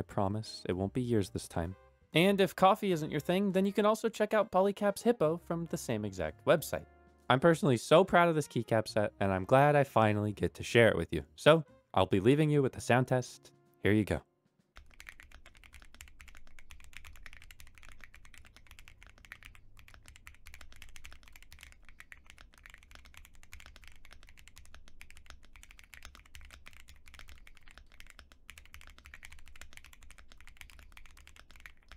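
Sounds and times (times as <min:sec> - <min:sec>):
fast mechanical keyboard typing: 0:14.8 - 0:31.9.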